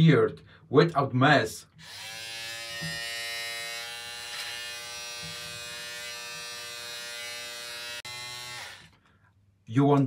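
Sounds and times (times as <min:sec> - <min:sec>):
beard trimmer motor whine: 0:01.8 - 0:09.0.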